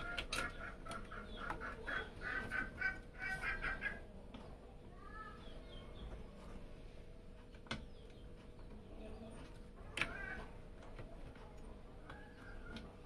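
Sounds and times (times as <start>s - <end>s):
bird calling: 0.0s - 4.1s.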